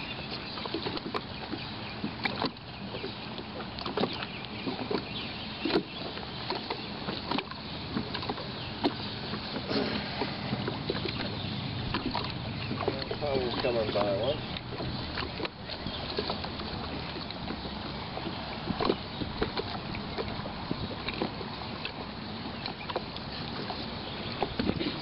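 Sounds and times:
small waves lapping: 0.0s - 25.0s
sharp splashes: 6.5s - 17.4s.

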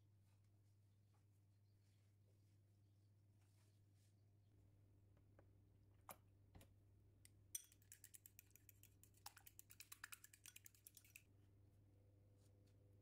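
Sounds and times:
fork clinking against glass bowl: 7.5s - 8.8s, 10.3s - 11.2s.

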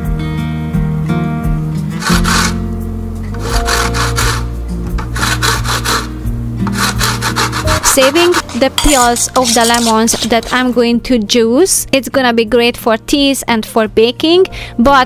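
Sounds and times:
lemon rasping on a grater: 2.0s - 2.6s, 3.4s - 10.8s.

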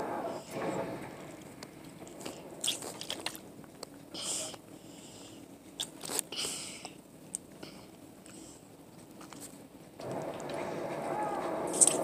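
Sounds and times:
biting and chewing: 1.4s - 4.0s, 5.7s - 6.6s.

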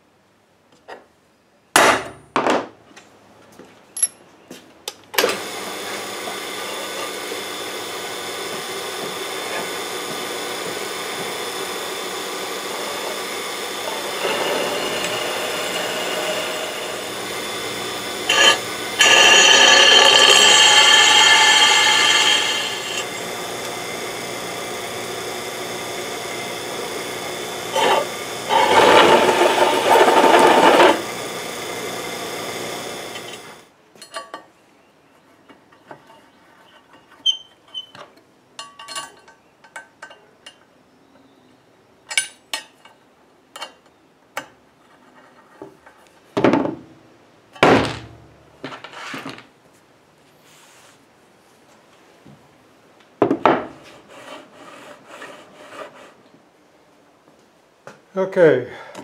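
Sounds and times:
drill press cutting steel: 5.3s - 33.6s
drill bit squeal: 12.6s - 23.8s, 26.0s - 31.2s, 37.2s - 38.0s.

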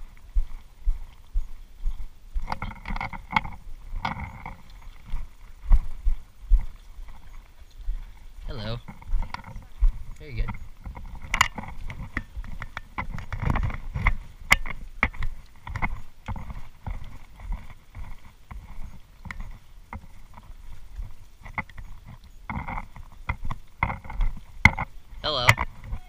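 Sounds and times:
footsteps on dirt path: 0.0s - 26.0s
handling rubber snorkel gear: 2.4s - 5.3s, 10.2s - 26.0s.

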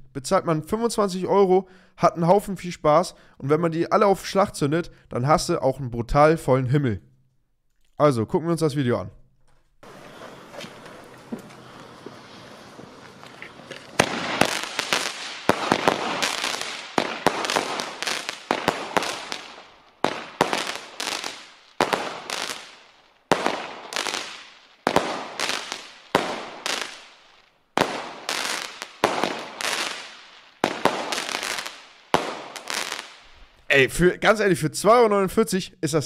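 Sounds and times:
firework bangs: 9.8s - 33.6s.

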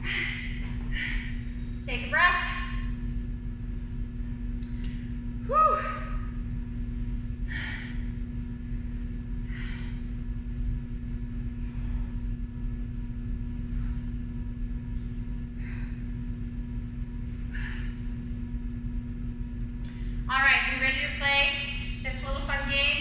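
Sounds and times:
woman breathing hard: 0.0s - 1.8s, 7.2s - 10.5s, 15.4s - 16.5s, 17.2s - 18.3s
steady low hum: 0.0s - 23.0s.

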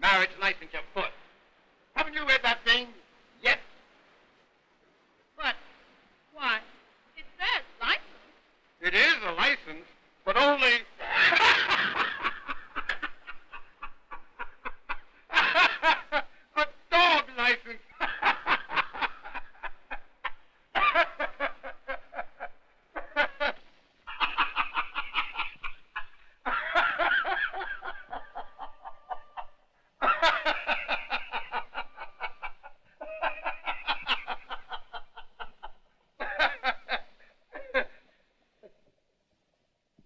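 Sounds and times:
man laughing hard: 11.0s - 16.4s, 20.8s - 38.0s.

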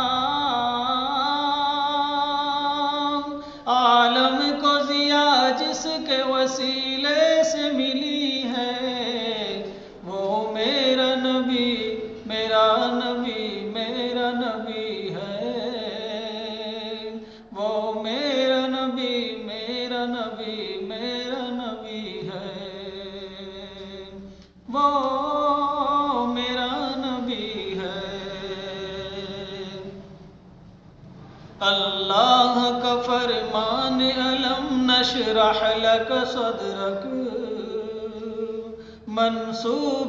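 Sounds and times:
person singing ornamented phrases: 0.0s - 30.0s.

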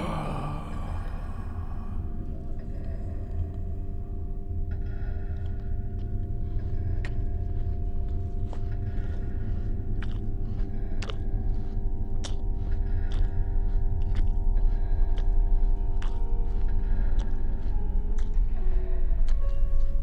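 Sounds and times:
low droning score: 0.0s - 20.0s
chewing with sharp crunches: 5.3s - 20.0s.

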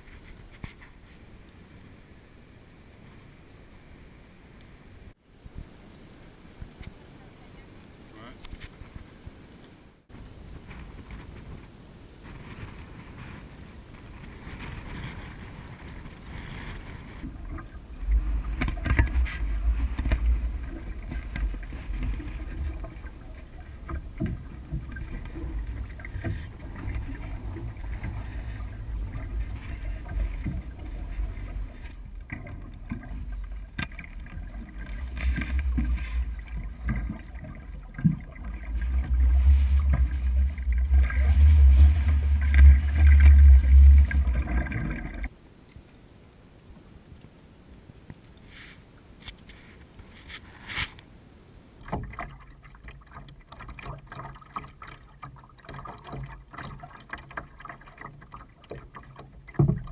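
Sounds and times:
water sloshing against hull: 0.0s - 7.7s, 8.4s - 45.4s, 51.7s - 59.9s
wind buffeting microphone: 10.2s - 45.3s
paddle strokes splashing: 12.2s - 45.3s, 51.8s - 59.9s.

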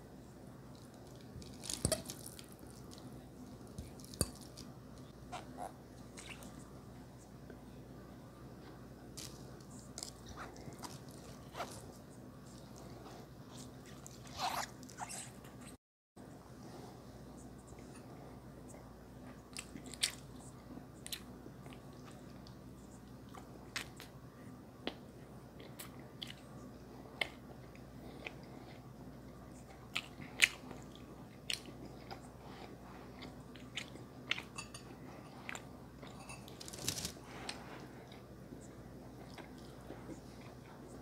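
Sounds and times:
close chewing and mouth sounds: 0.6s - 7.4s, 9.2s - 15.8s, 17.4s - 24.2s, 24.8s - 41.0s.

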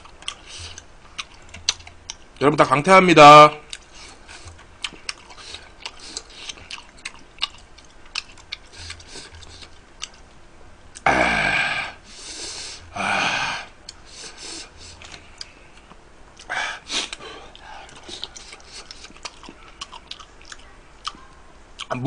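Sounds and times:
man burping: 11.0s - 12.0s.

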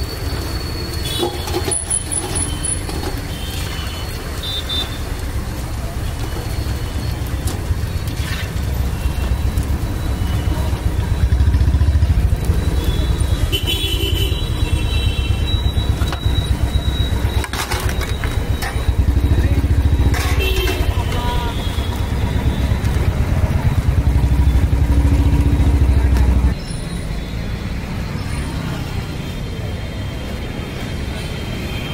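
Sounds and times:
engine rumble: 15.5s - 26.6s.

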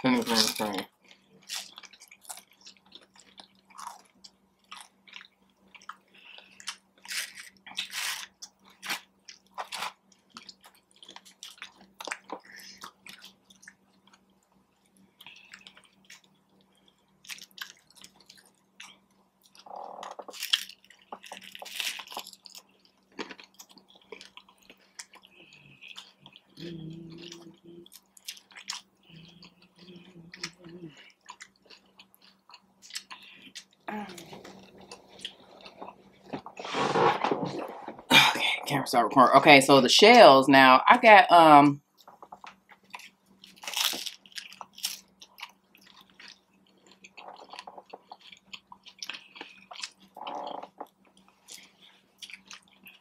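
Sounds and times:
crunchy food chewing: 0.2s - 38.1s, 42.0s - 53.0s.

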